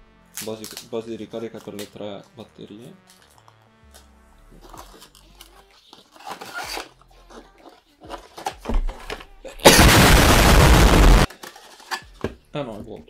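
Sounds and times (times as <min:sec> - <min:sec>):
paper and cardboard box rustling: 0:04.6 - 0:09.2
harsh hissing noise burst: 0:09.7 - 0:11.3.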